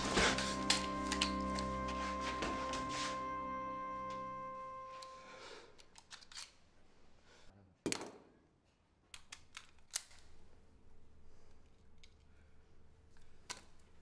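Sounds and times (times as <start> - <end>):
metallic clicks of pistol handling: 5.8 - 6.6, 9.1 - 10.4, 13.1 - 13.9.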